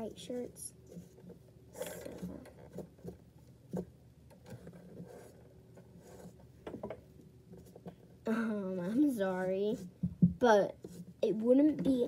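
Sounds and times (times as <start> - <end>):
marker rubbing on paper: 4.6 - 6.4, 10.8 - 11.9.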